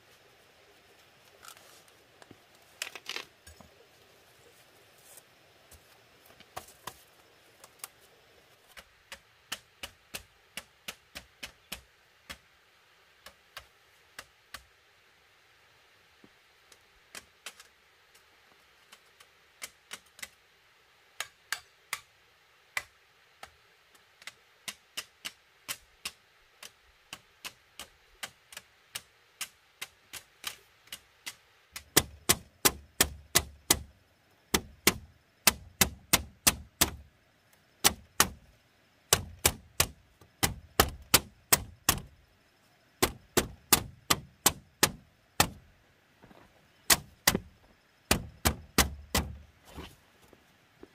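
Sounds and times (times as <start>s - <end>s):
heavy thumps: 46.9s - 49.5s.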